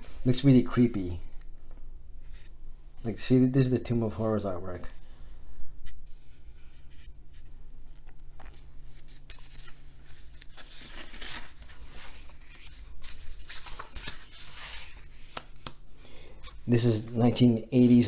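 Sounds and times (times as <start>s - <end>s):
book pages being turned: 5.5s - 15.8s.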